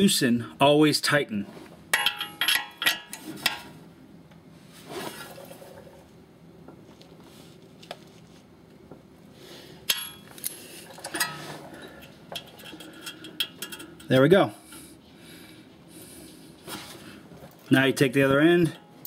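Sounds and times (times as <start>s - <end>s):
socket and wrench clinking: 2.0s - 3.6s, 11.0s - 14.1s.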